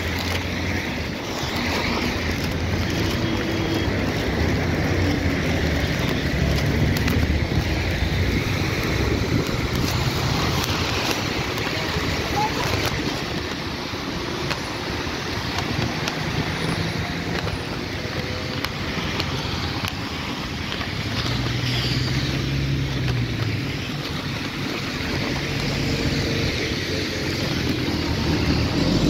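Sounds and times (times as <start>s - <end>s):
bus engine humming: 0.0s - 29.0s
tyres hissing on wet road: 0.0s - 29.0s.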